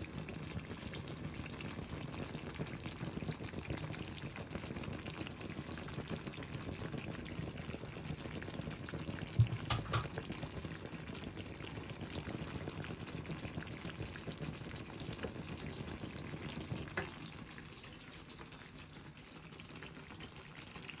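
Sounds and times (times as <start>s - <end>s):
food sizzling in a pan: 0.0s - 21.0s
sharp knock: 9.4s - 10.1s.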